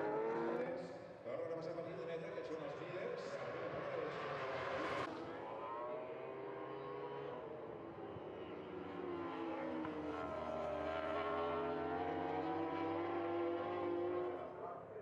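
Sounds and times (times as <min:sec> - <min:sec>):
motorbike engines at high revs: 0:05.6 - 0:14.4.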